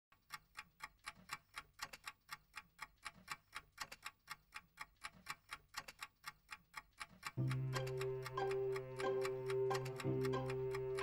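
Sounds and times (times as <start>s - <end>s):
clock ticking: 0.1s - 11.0s.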